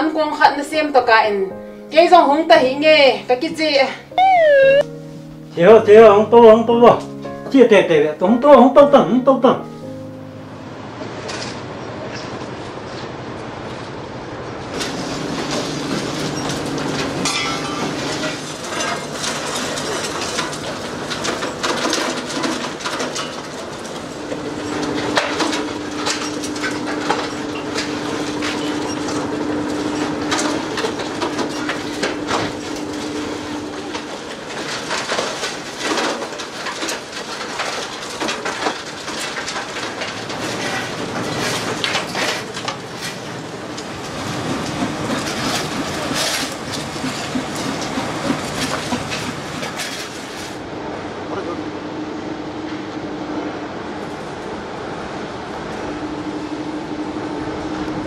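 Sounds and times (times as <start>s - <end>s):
crusher machinery rumble: 9.8s - 58.0s
steady hum: 14.1s - 36.0s.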